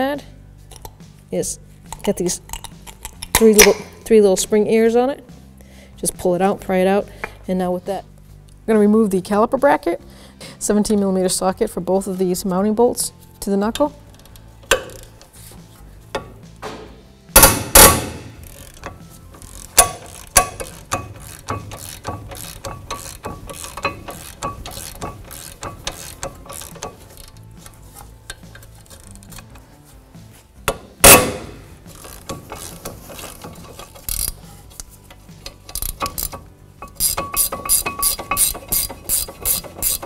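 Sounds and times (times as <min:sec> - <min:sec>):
socket ratchet clicking: 0:00.7 - 0:01.0, 0:01.9 - 0:04.0, 0:14.2 - 0:15.3, 0:17.4 - 0:29.6, 0:30.6 - 0:40.0.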